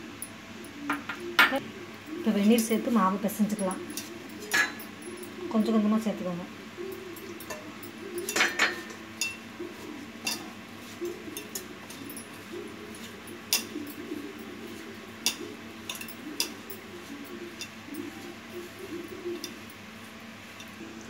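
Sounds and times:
hand mixing dough in a steel bowl: 0:02.2 - 0:21.0
glass bangles clinking: 0:03.5 - 0:05.6, 0:06.9 - 0:09.5, 0:10.2 - 0:19.8.

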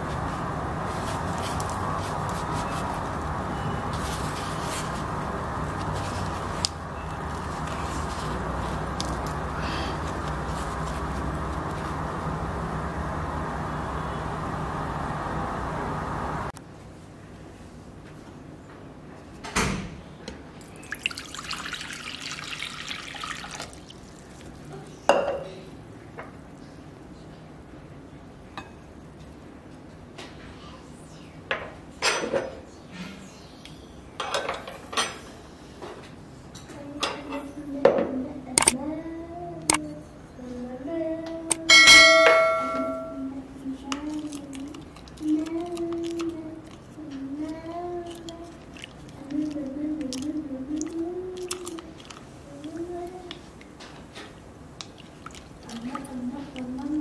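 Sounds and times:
water pouring into glass bowl: 0:20.6 - 0:24.7
glassy clink: 0:41.7 - 0:43.3.

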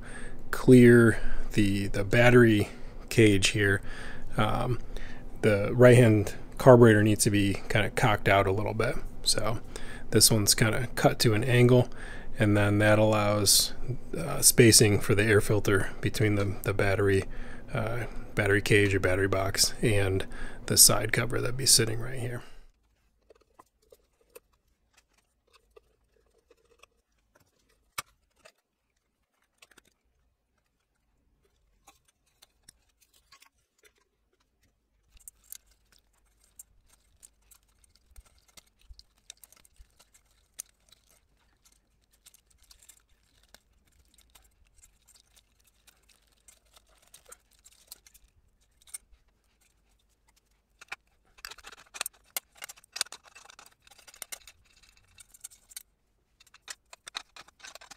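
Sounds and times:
metal parts rattling: 0:35.1 - 0:57.9.

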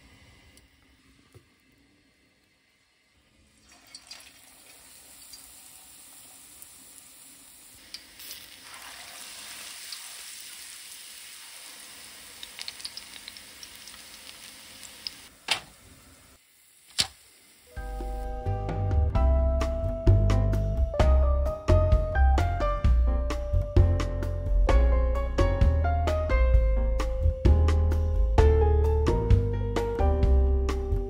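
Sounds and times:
deep-frying sizzle and pops: 0:03.7 - 0:15.7, 0:16.8 - 0:17.4.

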